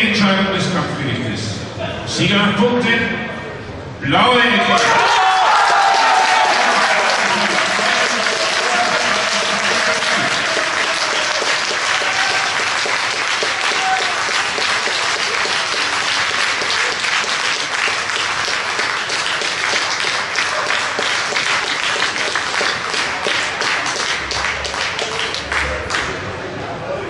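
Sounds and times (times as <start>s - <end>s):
audience applauding: 4.8s - 26.4s.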